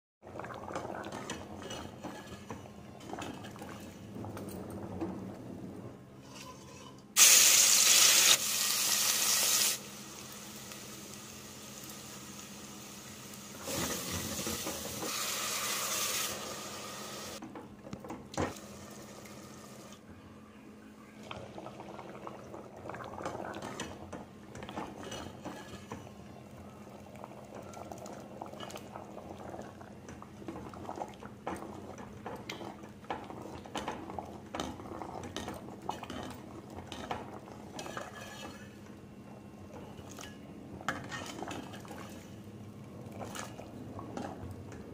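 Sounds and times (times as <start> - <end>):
metal spoon scraping steel pot: 6.2 - 7.0.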